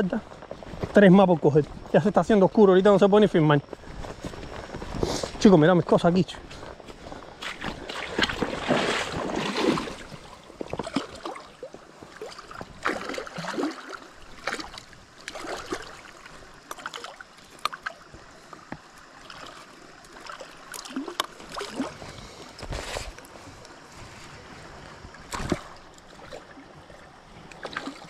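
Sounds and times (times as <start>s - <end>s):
river water splashing: 5.4s - 28.0s.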